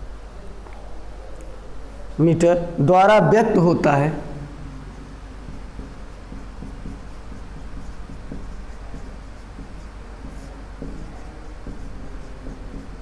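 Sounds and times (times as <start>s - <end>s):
steady low hum: 0.0s - 13.0s
marker scratching on whiteboard: 4.4s - 13.0s.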